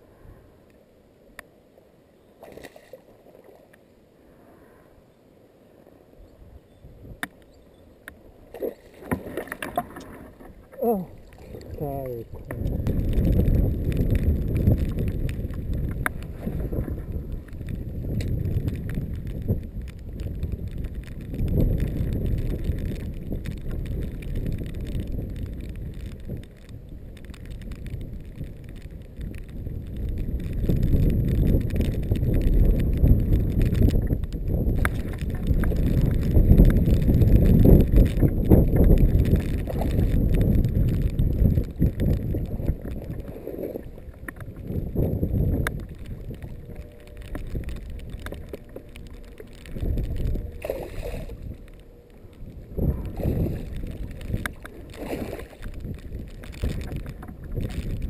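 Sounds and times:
wind buffeting microphone: 0:06.2 - 0:07.6, 0:08.6 - 0:58.0.

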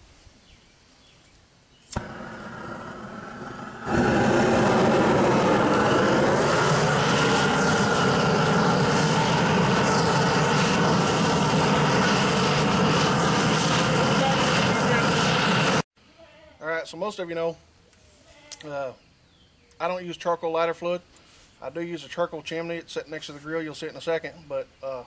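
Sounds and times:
torch igniter click: 0:01.9 - 0:05.8
gas hissing: 0:01.9 - 0:15.9
torch flame rushing: 0:01.9 - 0:15.9.

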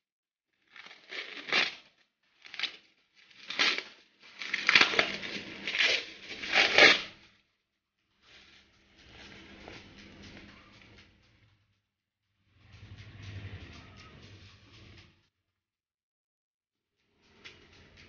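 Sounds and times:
plastic wrapping crinkling and tearing: 0:00.7 - 0:01.8, 0:02.4 - 0:07.1.

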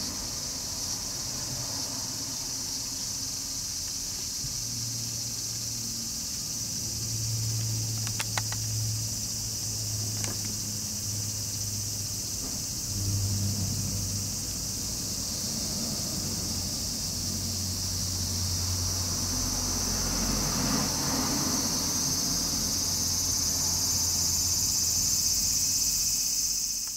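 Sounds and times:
distant traffic hum: 0:00.0 - 0:26.9
high-pitched insect chorus: 0:00.0 - 0:26.9
light clicks: 0:07.6 - 0:08.7.

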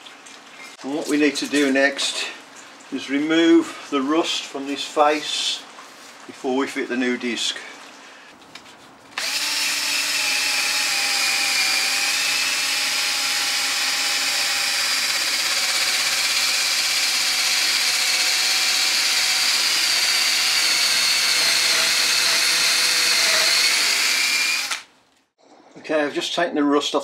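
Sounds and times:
drill motor whining: 0:09.2 - 0:24.9.

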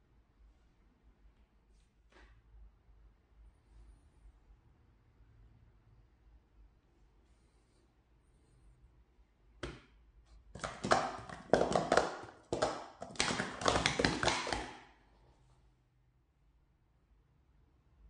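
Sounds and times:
plastic cups clattering: 0:10.6 - 0:14.9.

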